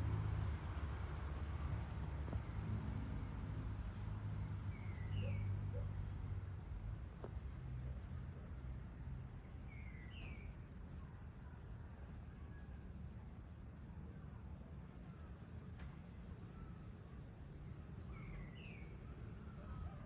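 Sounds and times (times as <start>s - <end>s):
crickets trilling: 0.0s - 20.0s
bird chirps: 4.7s - 5.8s.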